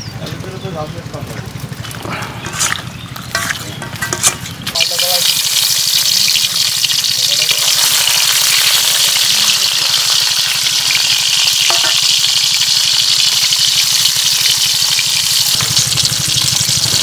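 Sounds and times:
metal spatula turning fish: 0:01.8 - 0:16.7
fish sizzling in hot oil: 0:04.5 - 0:17.0.

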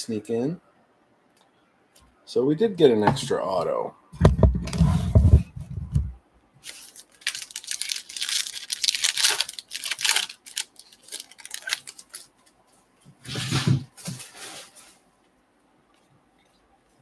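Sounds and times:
plastic wrapper tearing and crinkling: 0:06.6 - 0:12.4.

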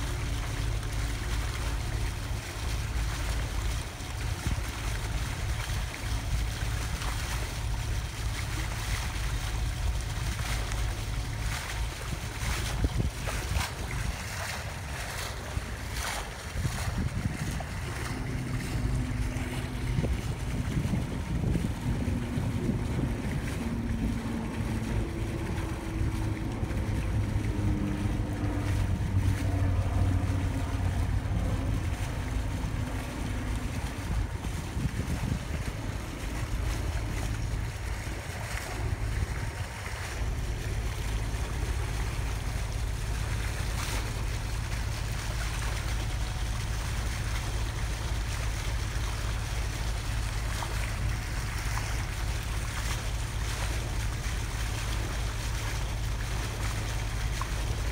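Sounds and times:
boat engine drone: 0:00.0 - 0:57.9
wind on microphone: 0:09.4 - 0:48.3.

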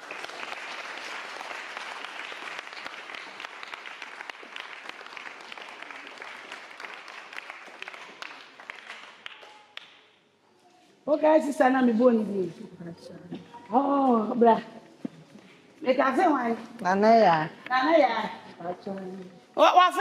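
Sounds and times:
crowd clapping: 0:00.0 - 0:10.1.

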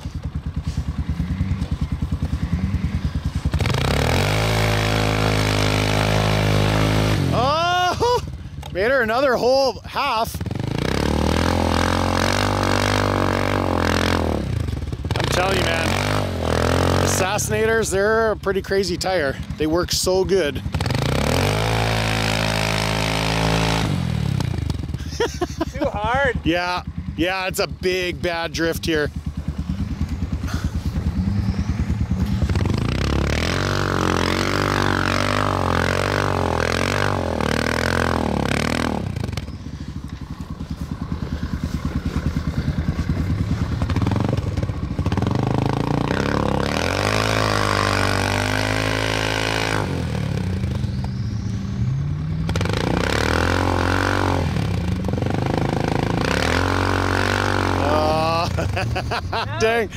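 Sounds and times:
atv engine revving hard: 0:00.0 - 0:59.9.

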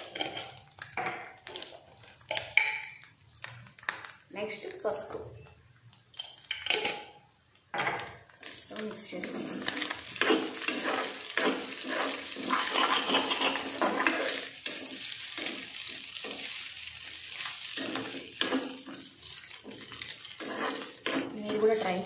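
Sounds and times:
metal spoon scraping a pan: 0:00.0 - 0:00.6, 0:09.2 - 0:22.0
frying sizzle: 0:00.0 - 0:22.0.

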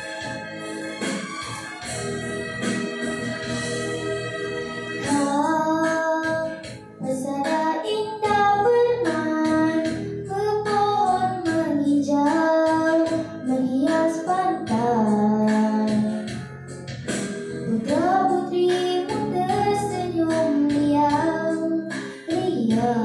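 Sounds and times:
instrumental accompaniment: 0:00.0 - 0:23.0
girl singing into a microphone: 0:05.0 - 0:16.7, 0:17.6 - 0:23.0.

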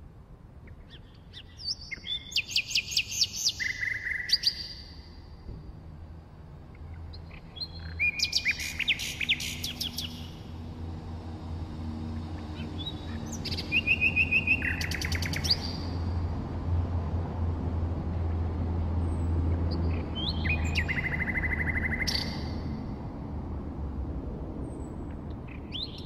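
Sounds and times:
nightingale singing: 0:00.6 - 0:05.1, 0:07.1 - 0:10.4, 0:12.5 - 0:16.0, 0:19.8 - 0:22.6.

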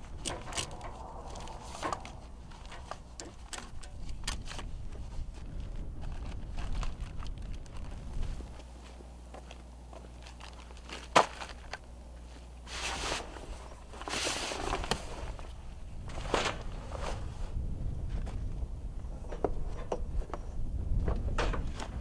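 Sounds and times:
footsteps on dry dirt: 0:04.6 - 0:12.6.

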